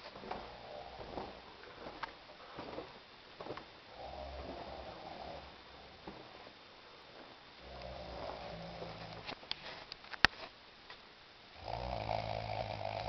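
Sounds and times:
man snoring: 0:03.9 - 0:05.5, 0:07.6 - 0:09.2, 0:11.6 - 0:13.0.

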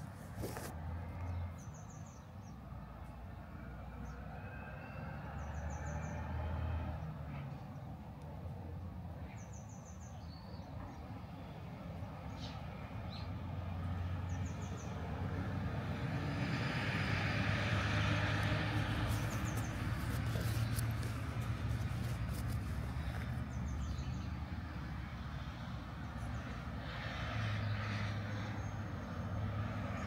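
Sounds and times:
vehicles passing: 0:00.0 - 0:09.5, 0:12.2 - 0:30.0
low engine hum: 0:14.0 - 0:27.1.

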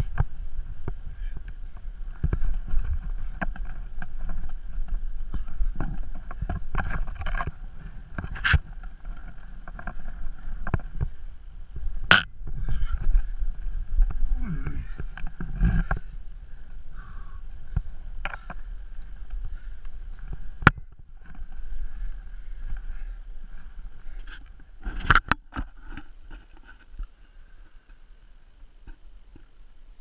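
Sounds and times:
wind rumble on microphone: 0:00.0 - 0:27.1.

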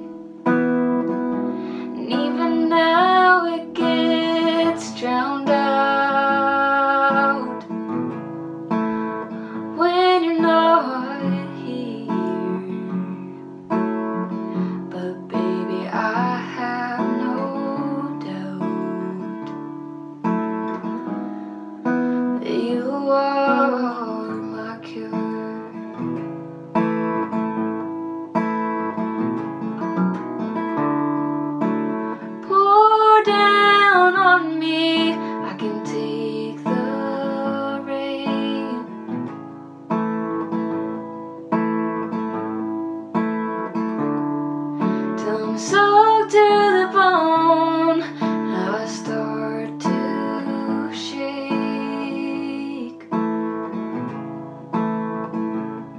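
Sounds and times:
acoustic guitar strumming: 0:00.0 - 0:55.9
woman singing: 0:01.4 - 0:08.0, 0:09.6 - 0:13.4, 0:14.2 - 0:19.8, 0:22.2 - 0:26.2, 0:32.1 - 0:39.3, 0:44.8 - 0:53.2.

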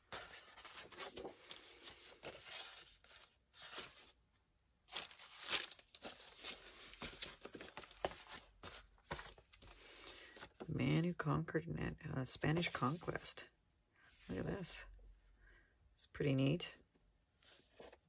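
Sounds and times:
paper pages rustling: 0:00.0 - 0:04.2, 0:04.9 - 0:10.7, 0:17.4 - 0:18.0.

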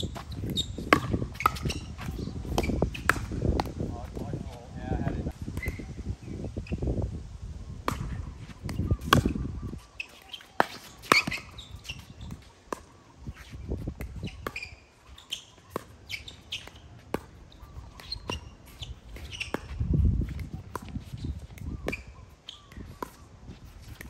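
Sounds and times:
birds chirping: 0:07.7 - 0:23.9.

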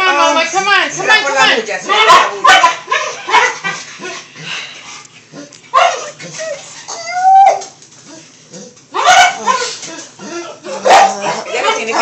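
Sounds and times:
dog whining: 0:05.2 - 0:12.0
dog whimpering: 0:05.3 - 0:12.0.

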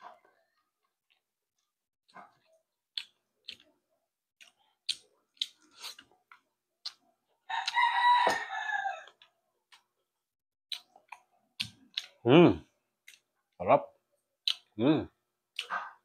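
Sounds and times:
eating clicks and smacks: 0:02.1 - 0:03.8, 0:04.4 - 0:08.4, 0:10.7 - 0:12.2, 0:13.0 - 0:13.4, 0:14.4 - 0:14.8
rooster crowing: 0:07.5 - 0:09.2.

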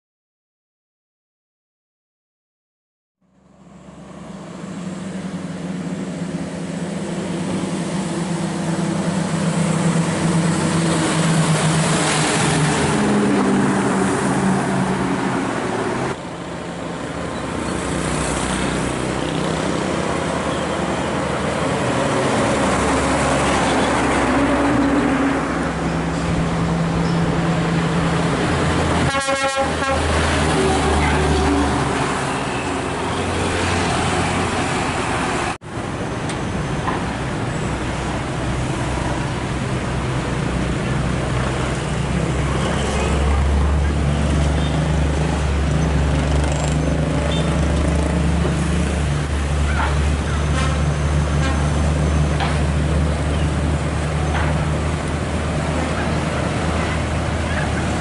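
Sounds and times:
diesel trucks driving past: 0:03.2 - 0:58.0
truck horn: 0:29.0 - 0:33.2, 0:50.2 - 0:51.8.

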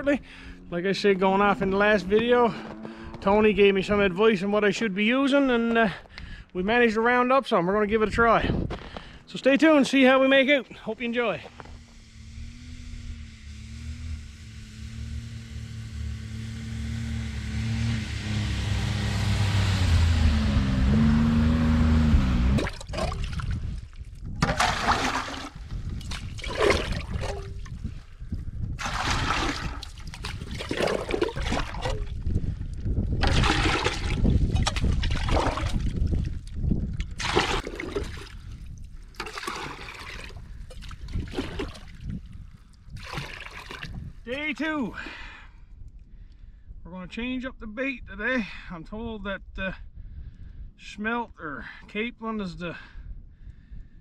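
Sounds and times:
small engine running: 0:11.4 - 0:22.6
water splashing and pouring: 0:22.6 - 0:27.8, 0:28.8 - 0:32.2, 0:33.2 - 0:36.5, 0:37.1 - 0:42.2, 0:42.9 - 0:44.0.

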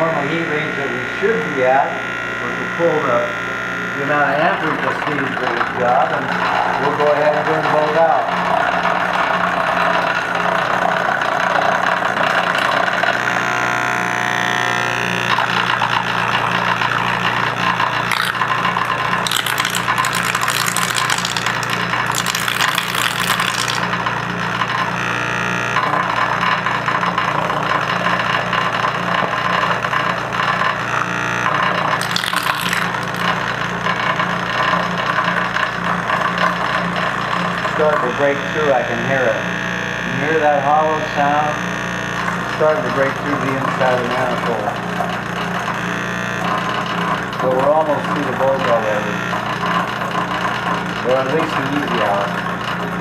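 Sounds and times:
electrical buzz: 0:18.1 - 0:23.9.

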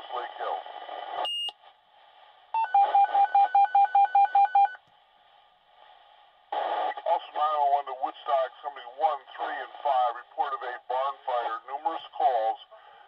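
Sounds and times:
radio hiss: 0:00.0 - 0:01.2, 0:05.8 - 0:13.0
burst of radio static: 0:06.5 - 0:12.6.

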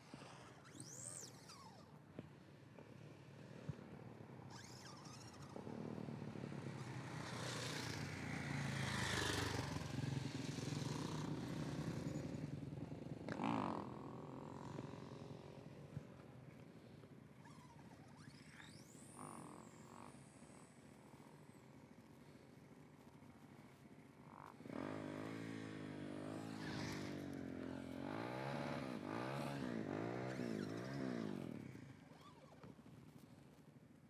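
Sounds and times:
motorcycle passing: 0:04.5 - 0:16.2, 0:24.2 - 0:32.8.

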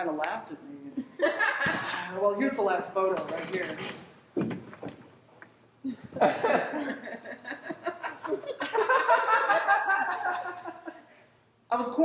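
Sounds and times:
audience laughing: 0:06.2 - 0:11.2.

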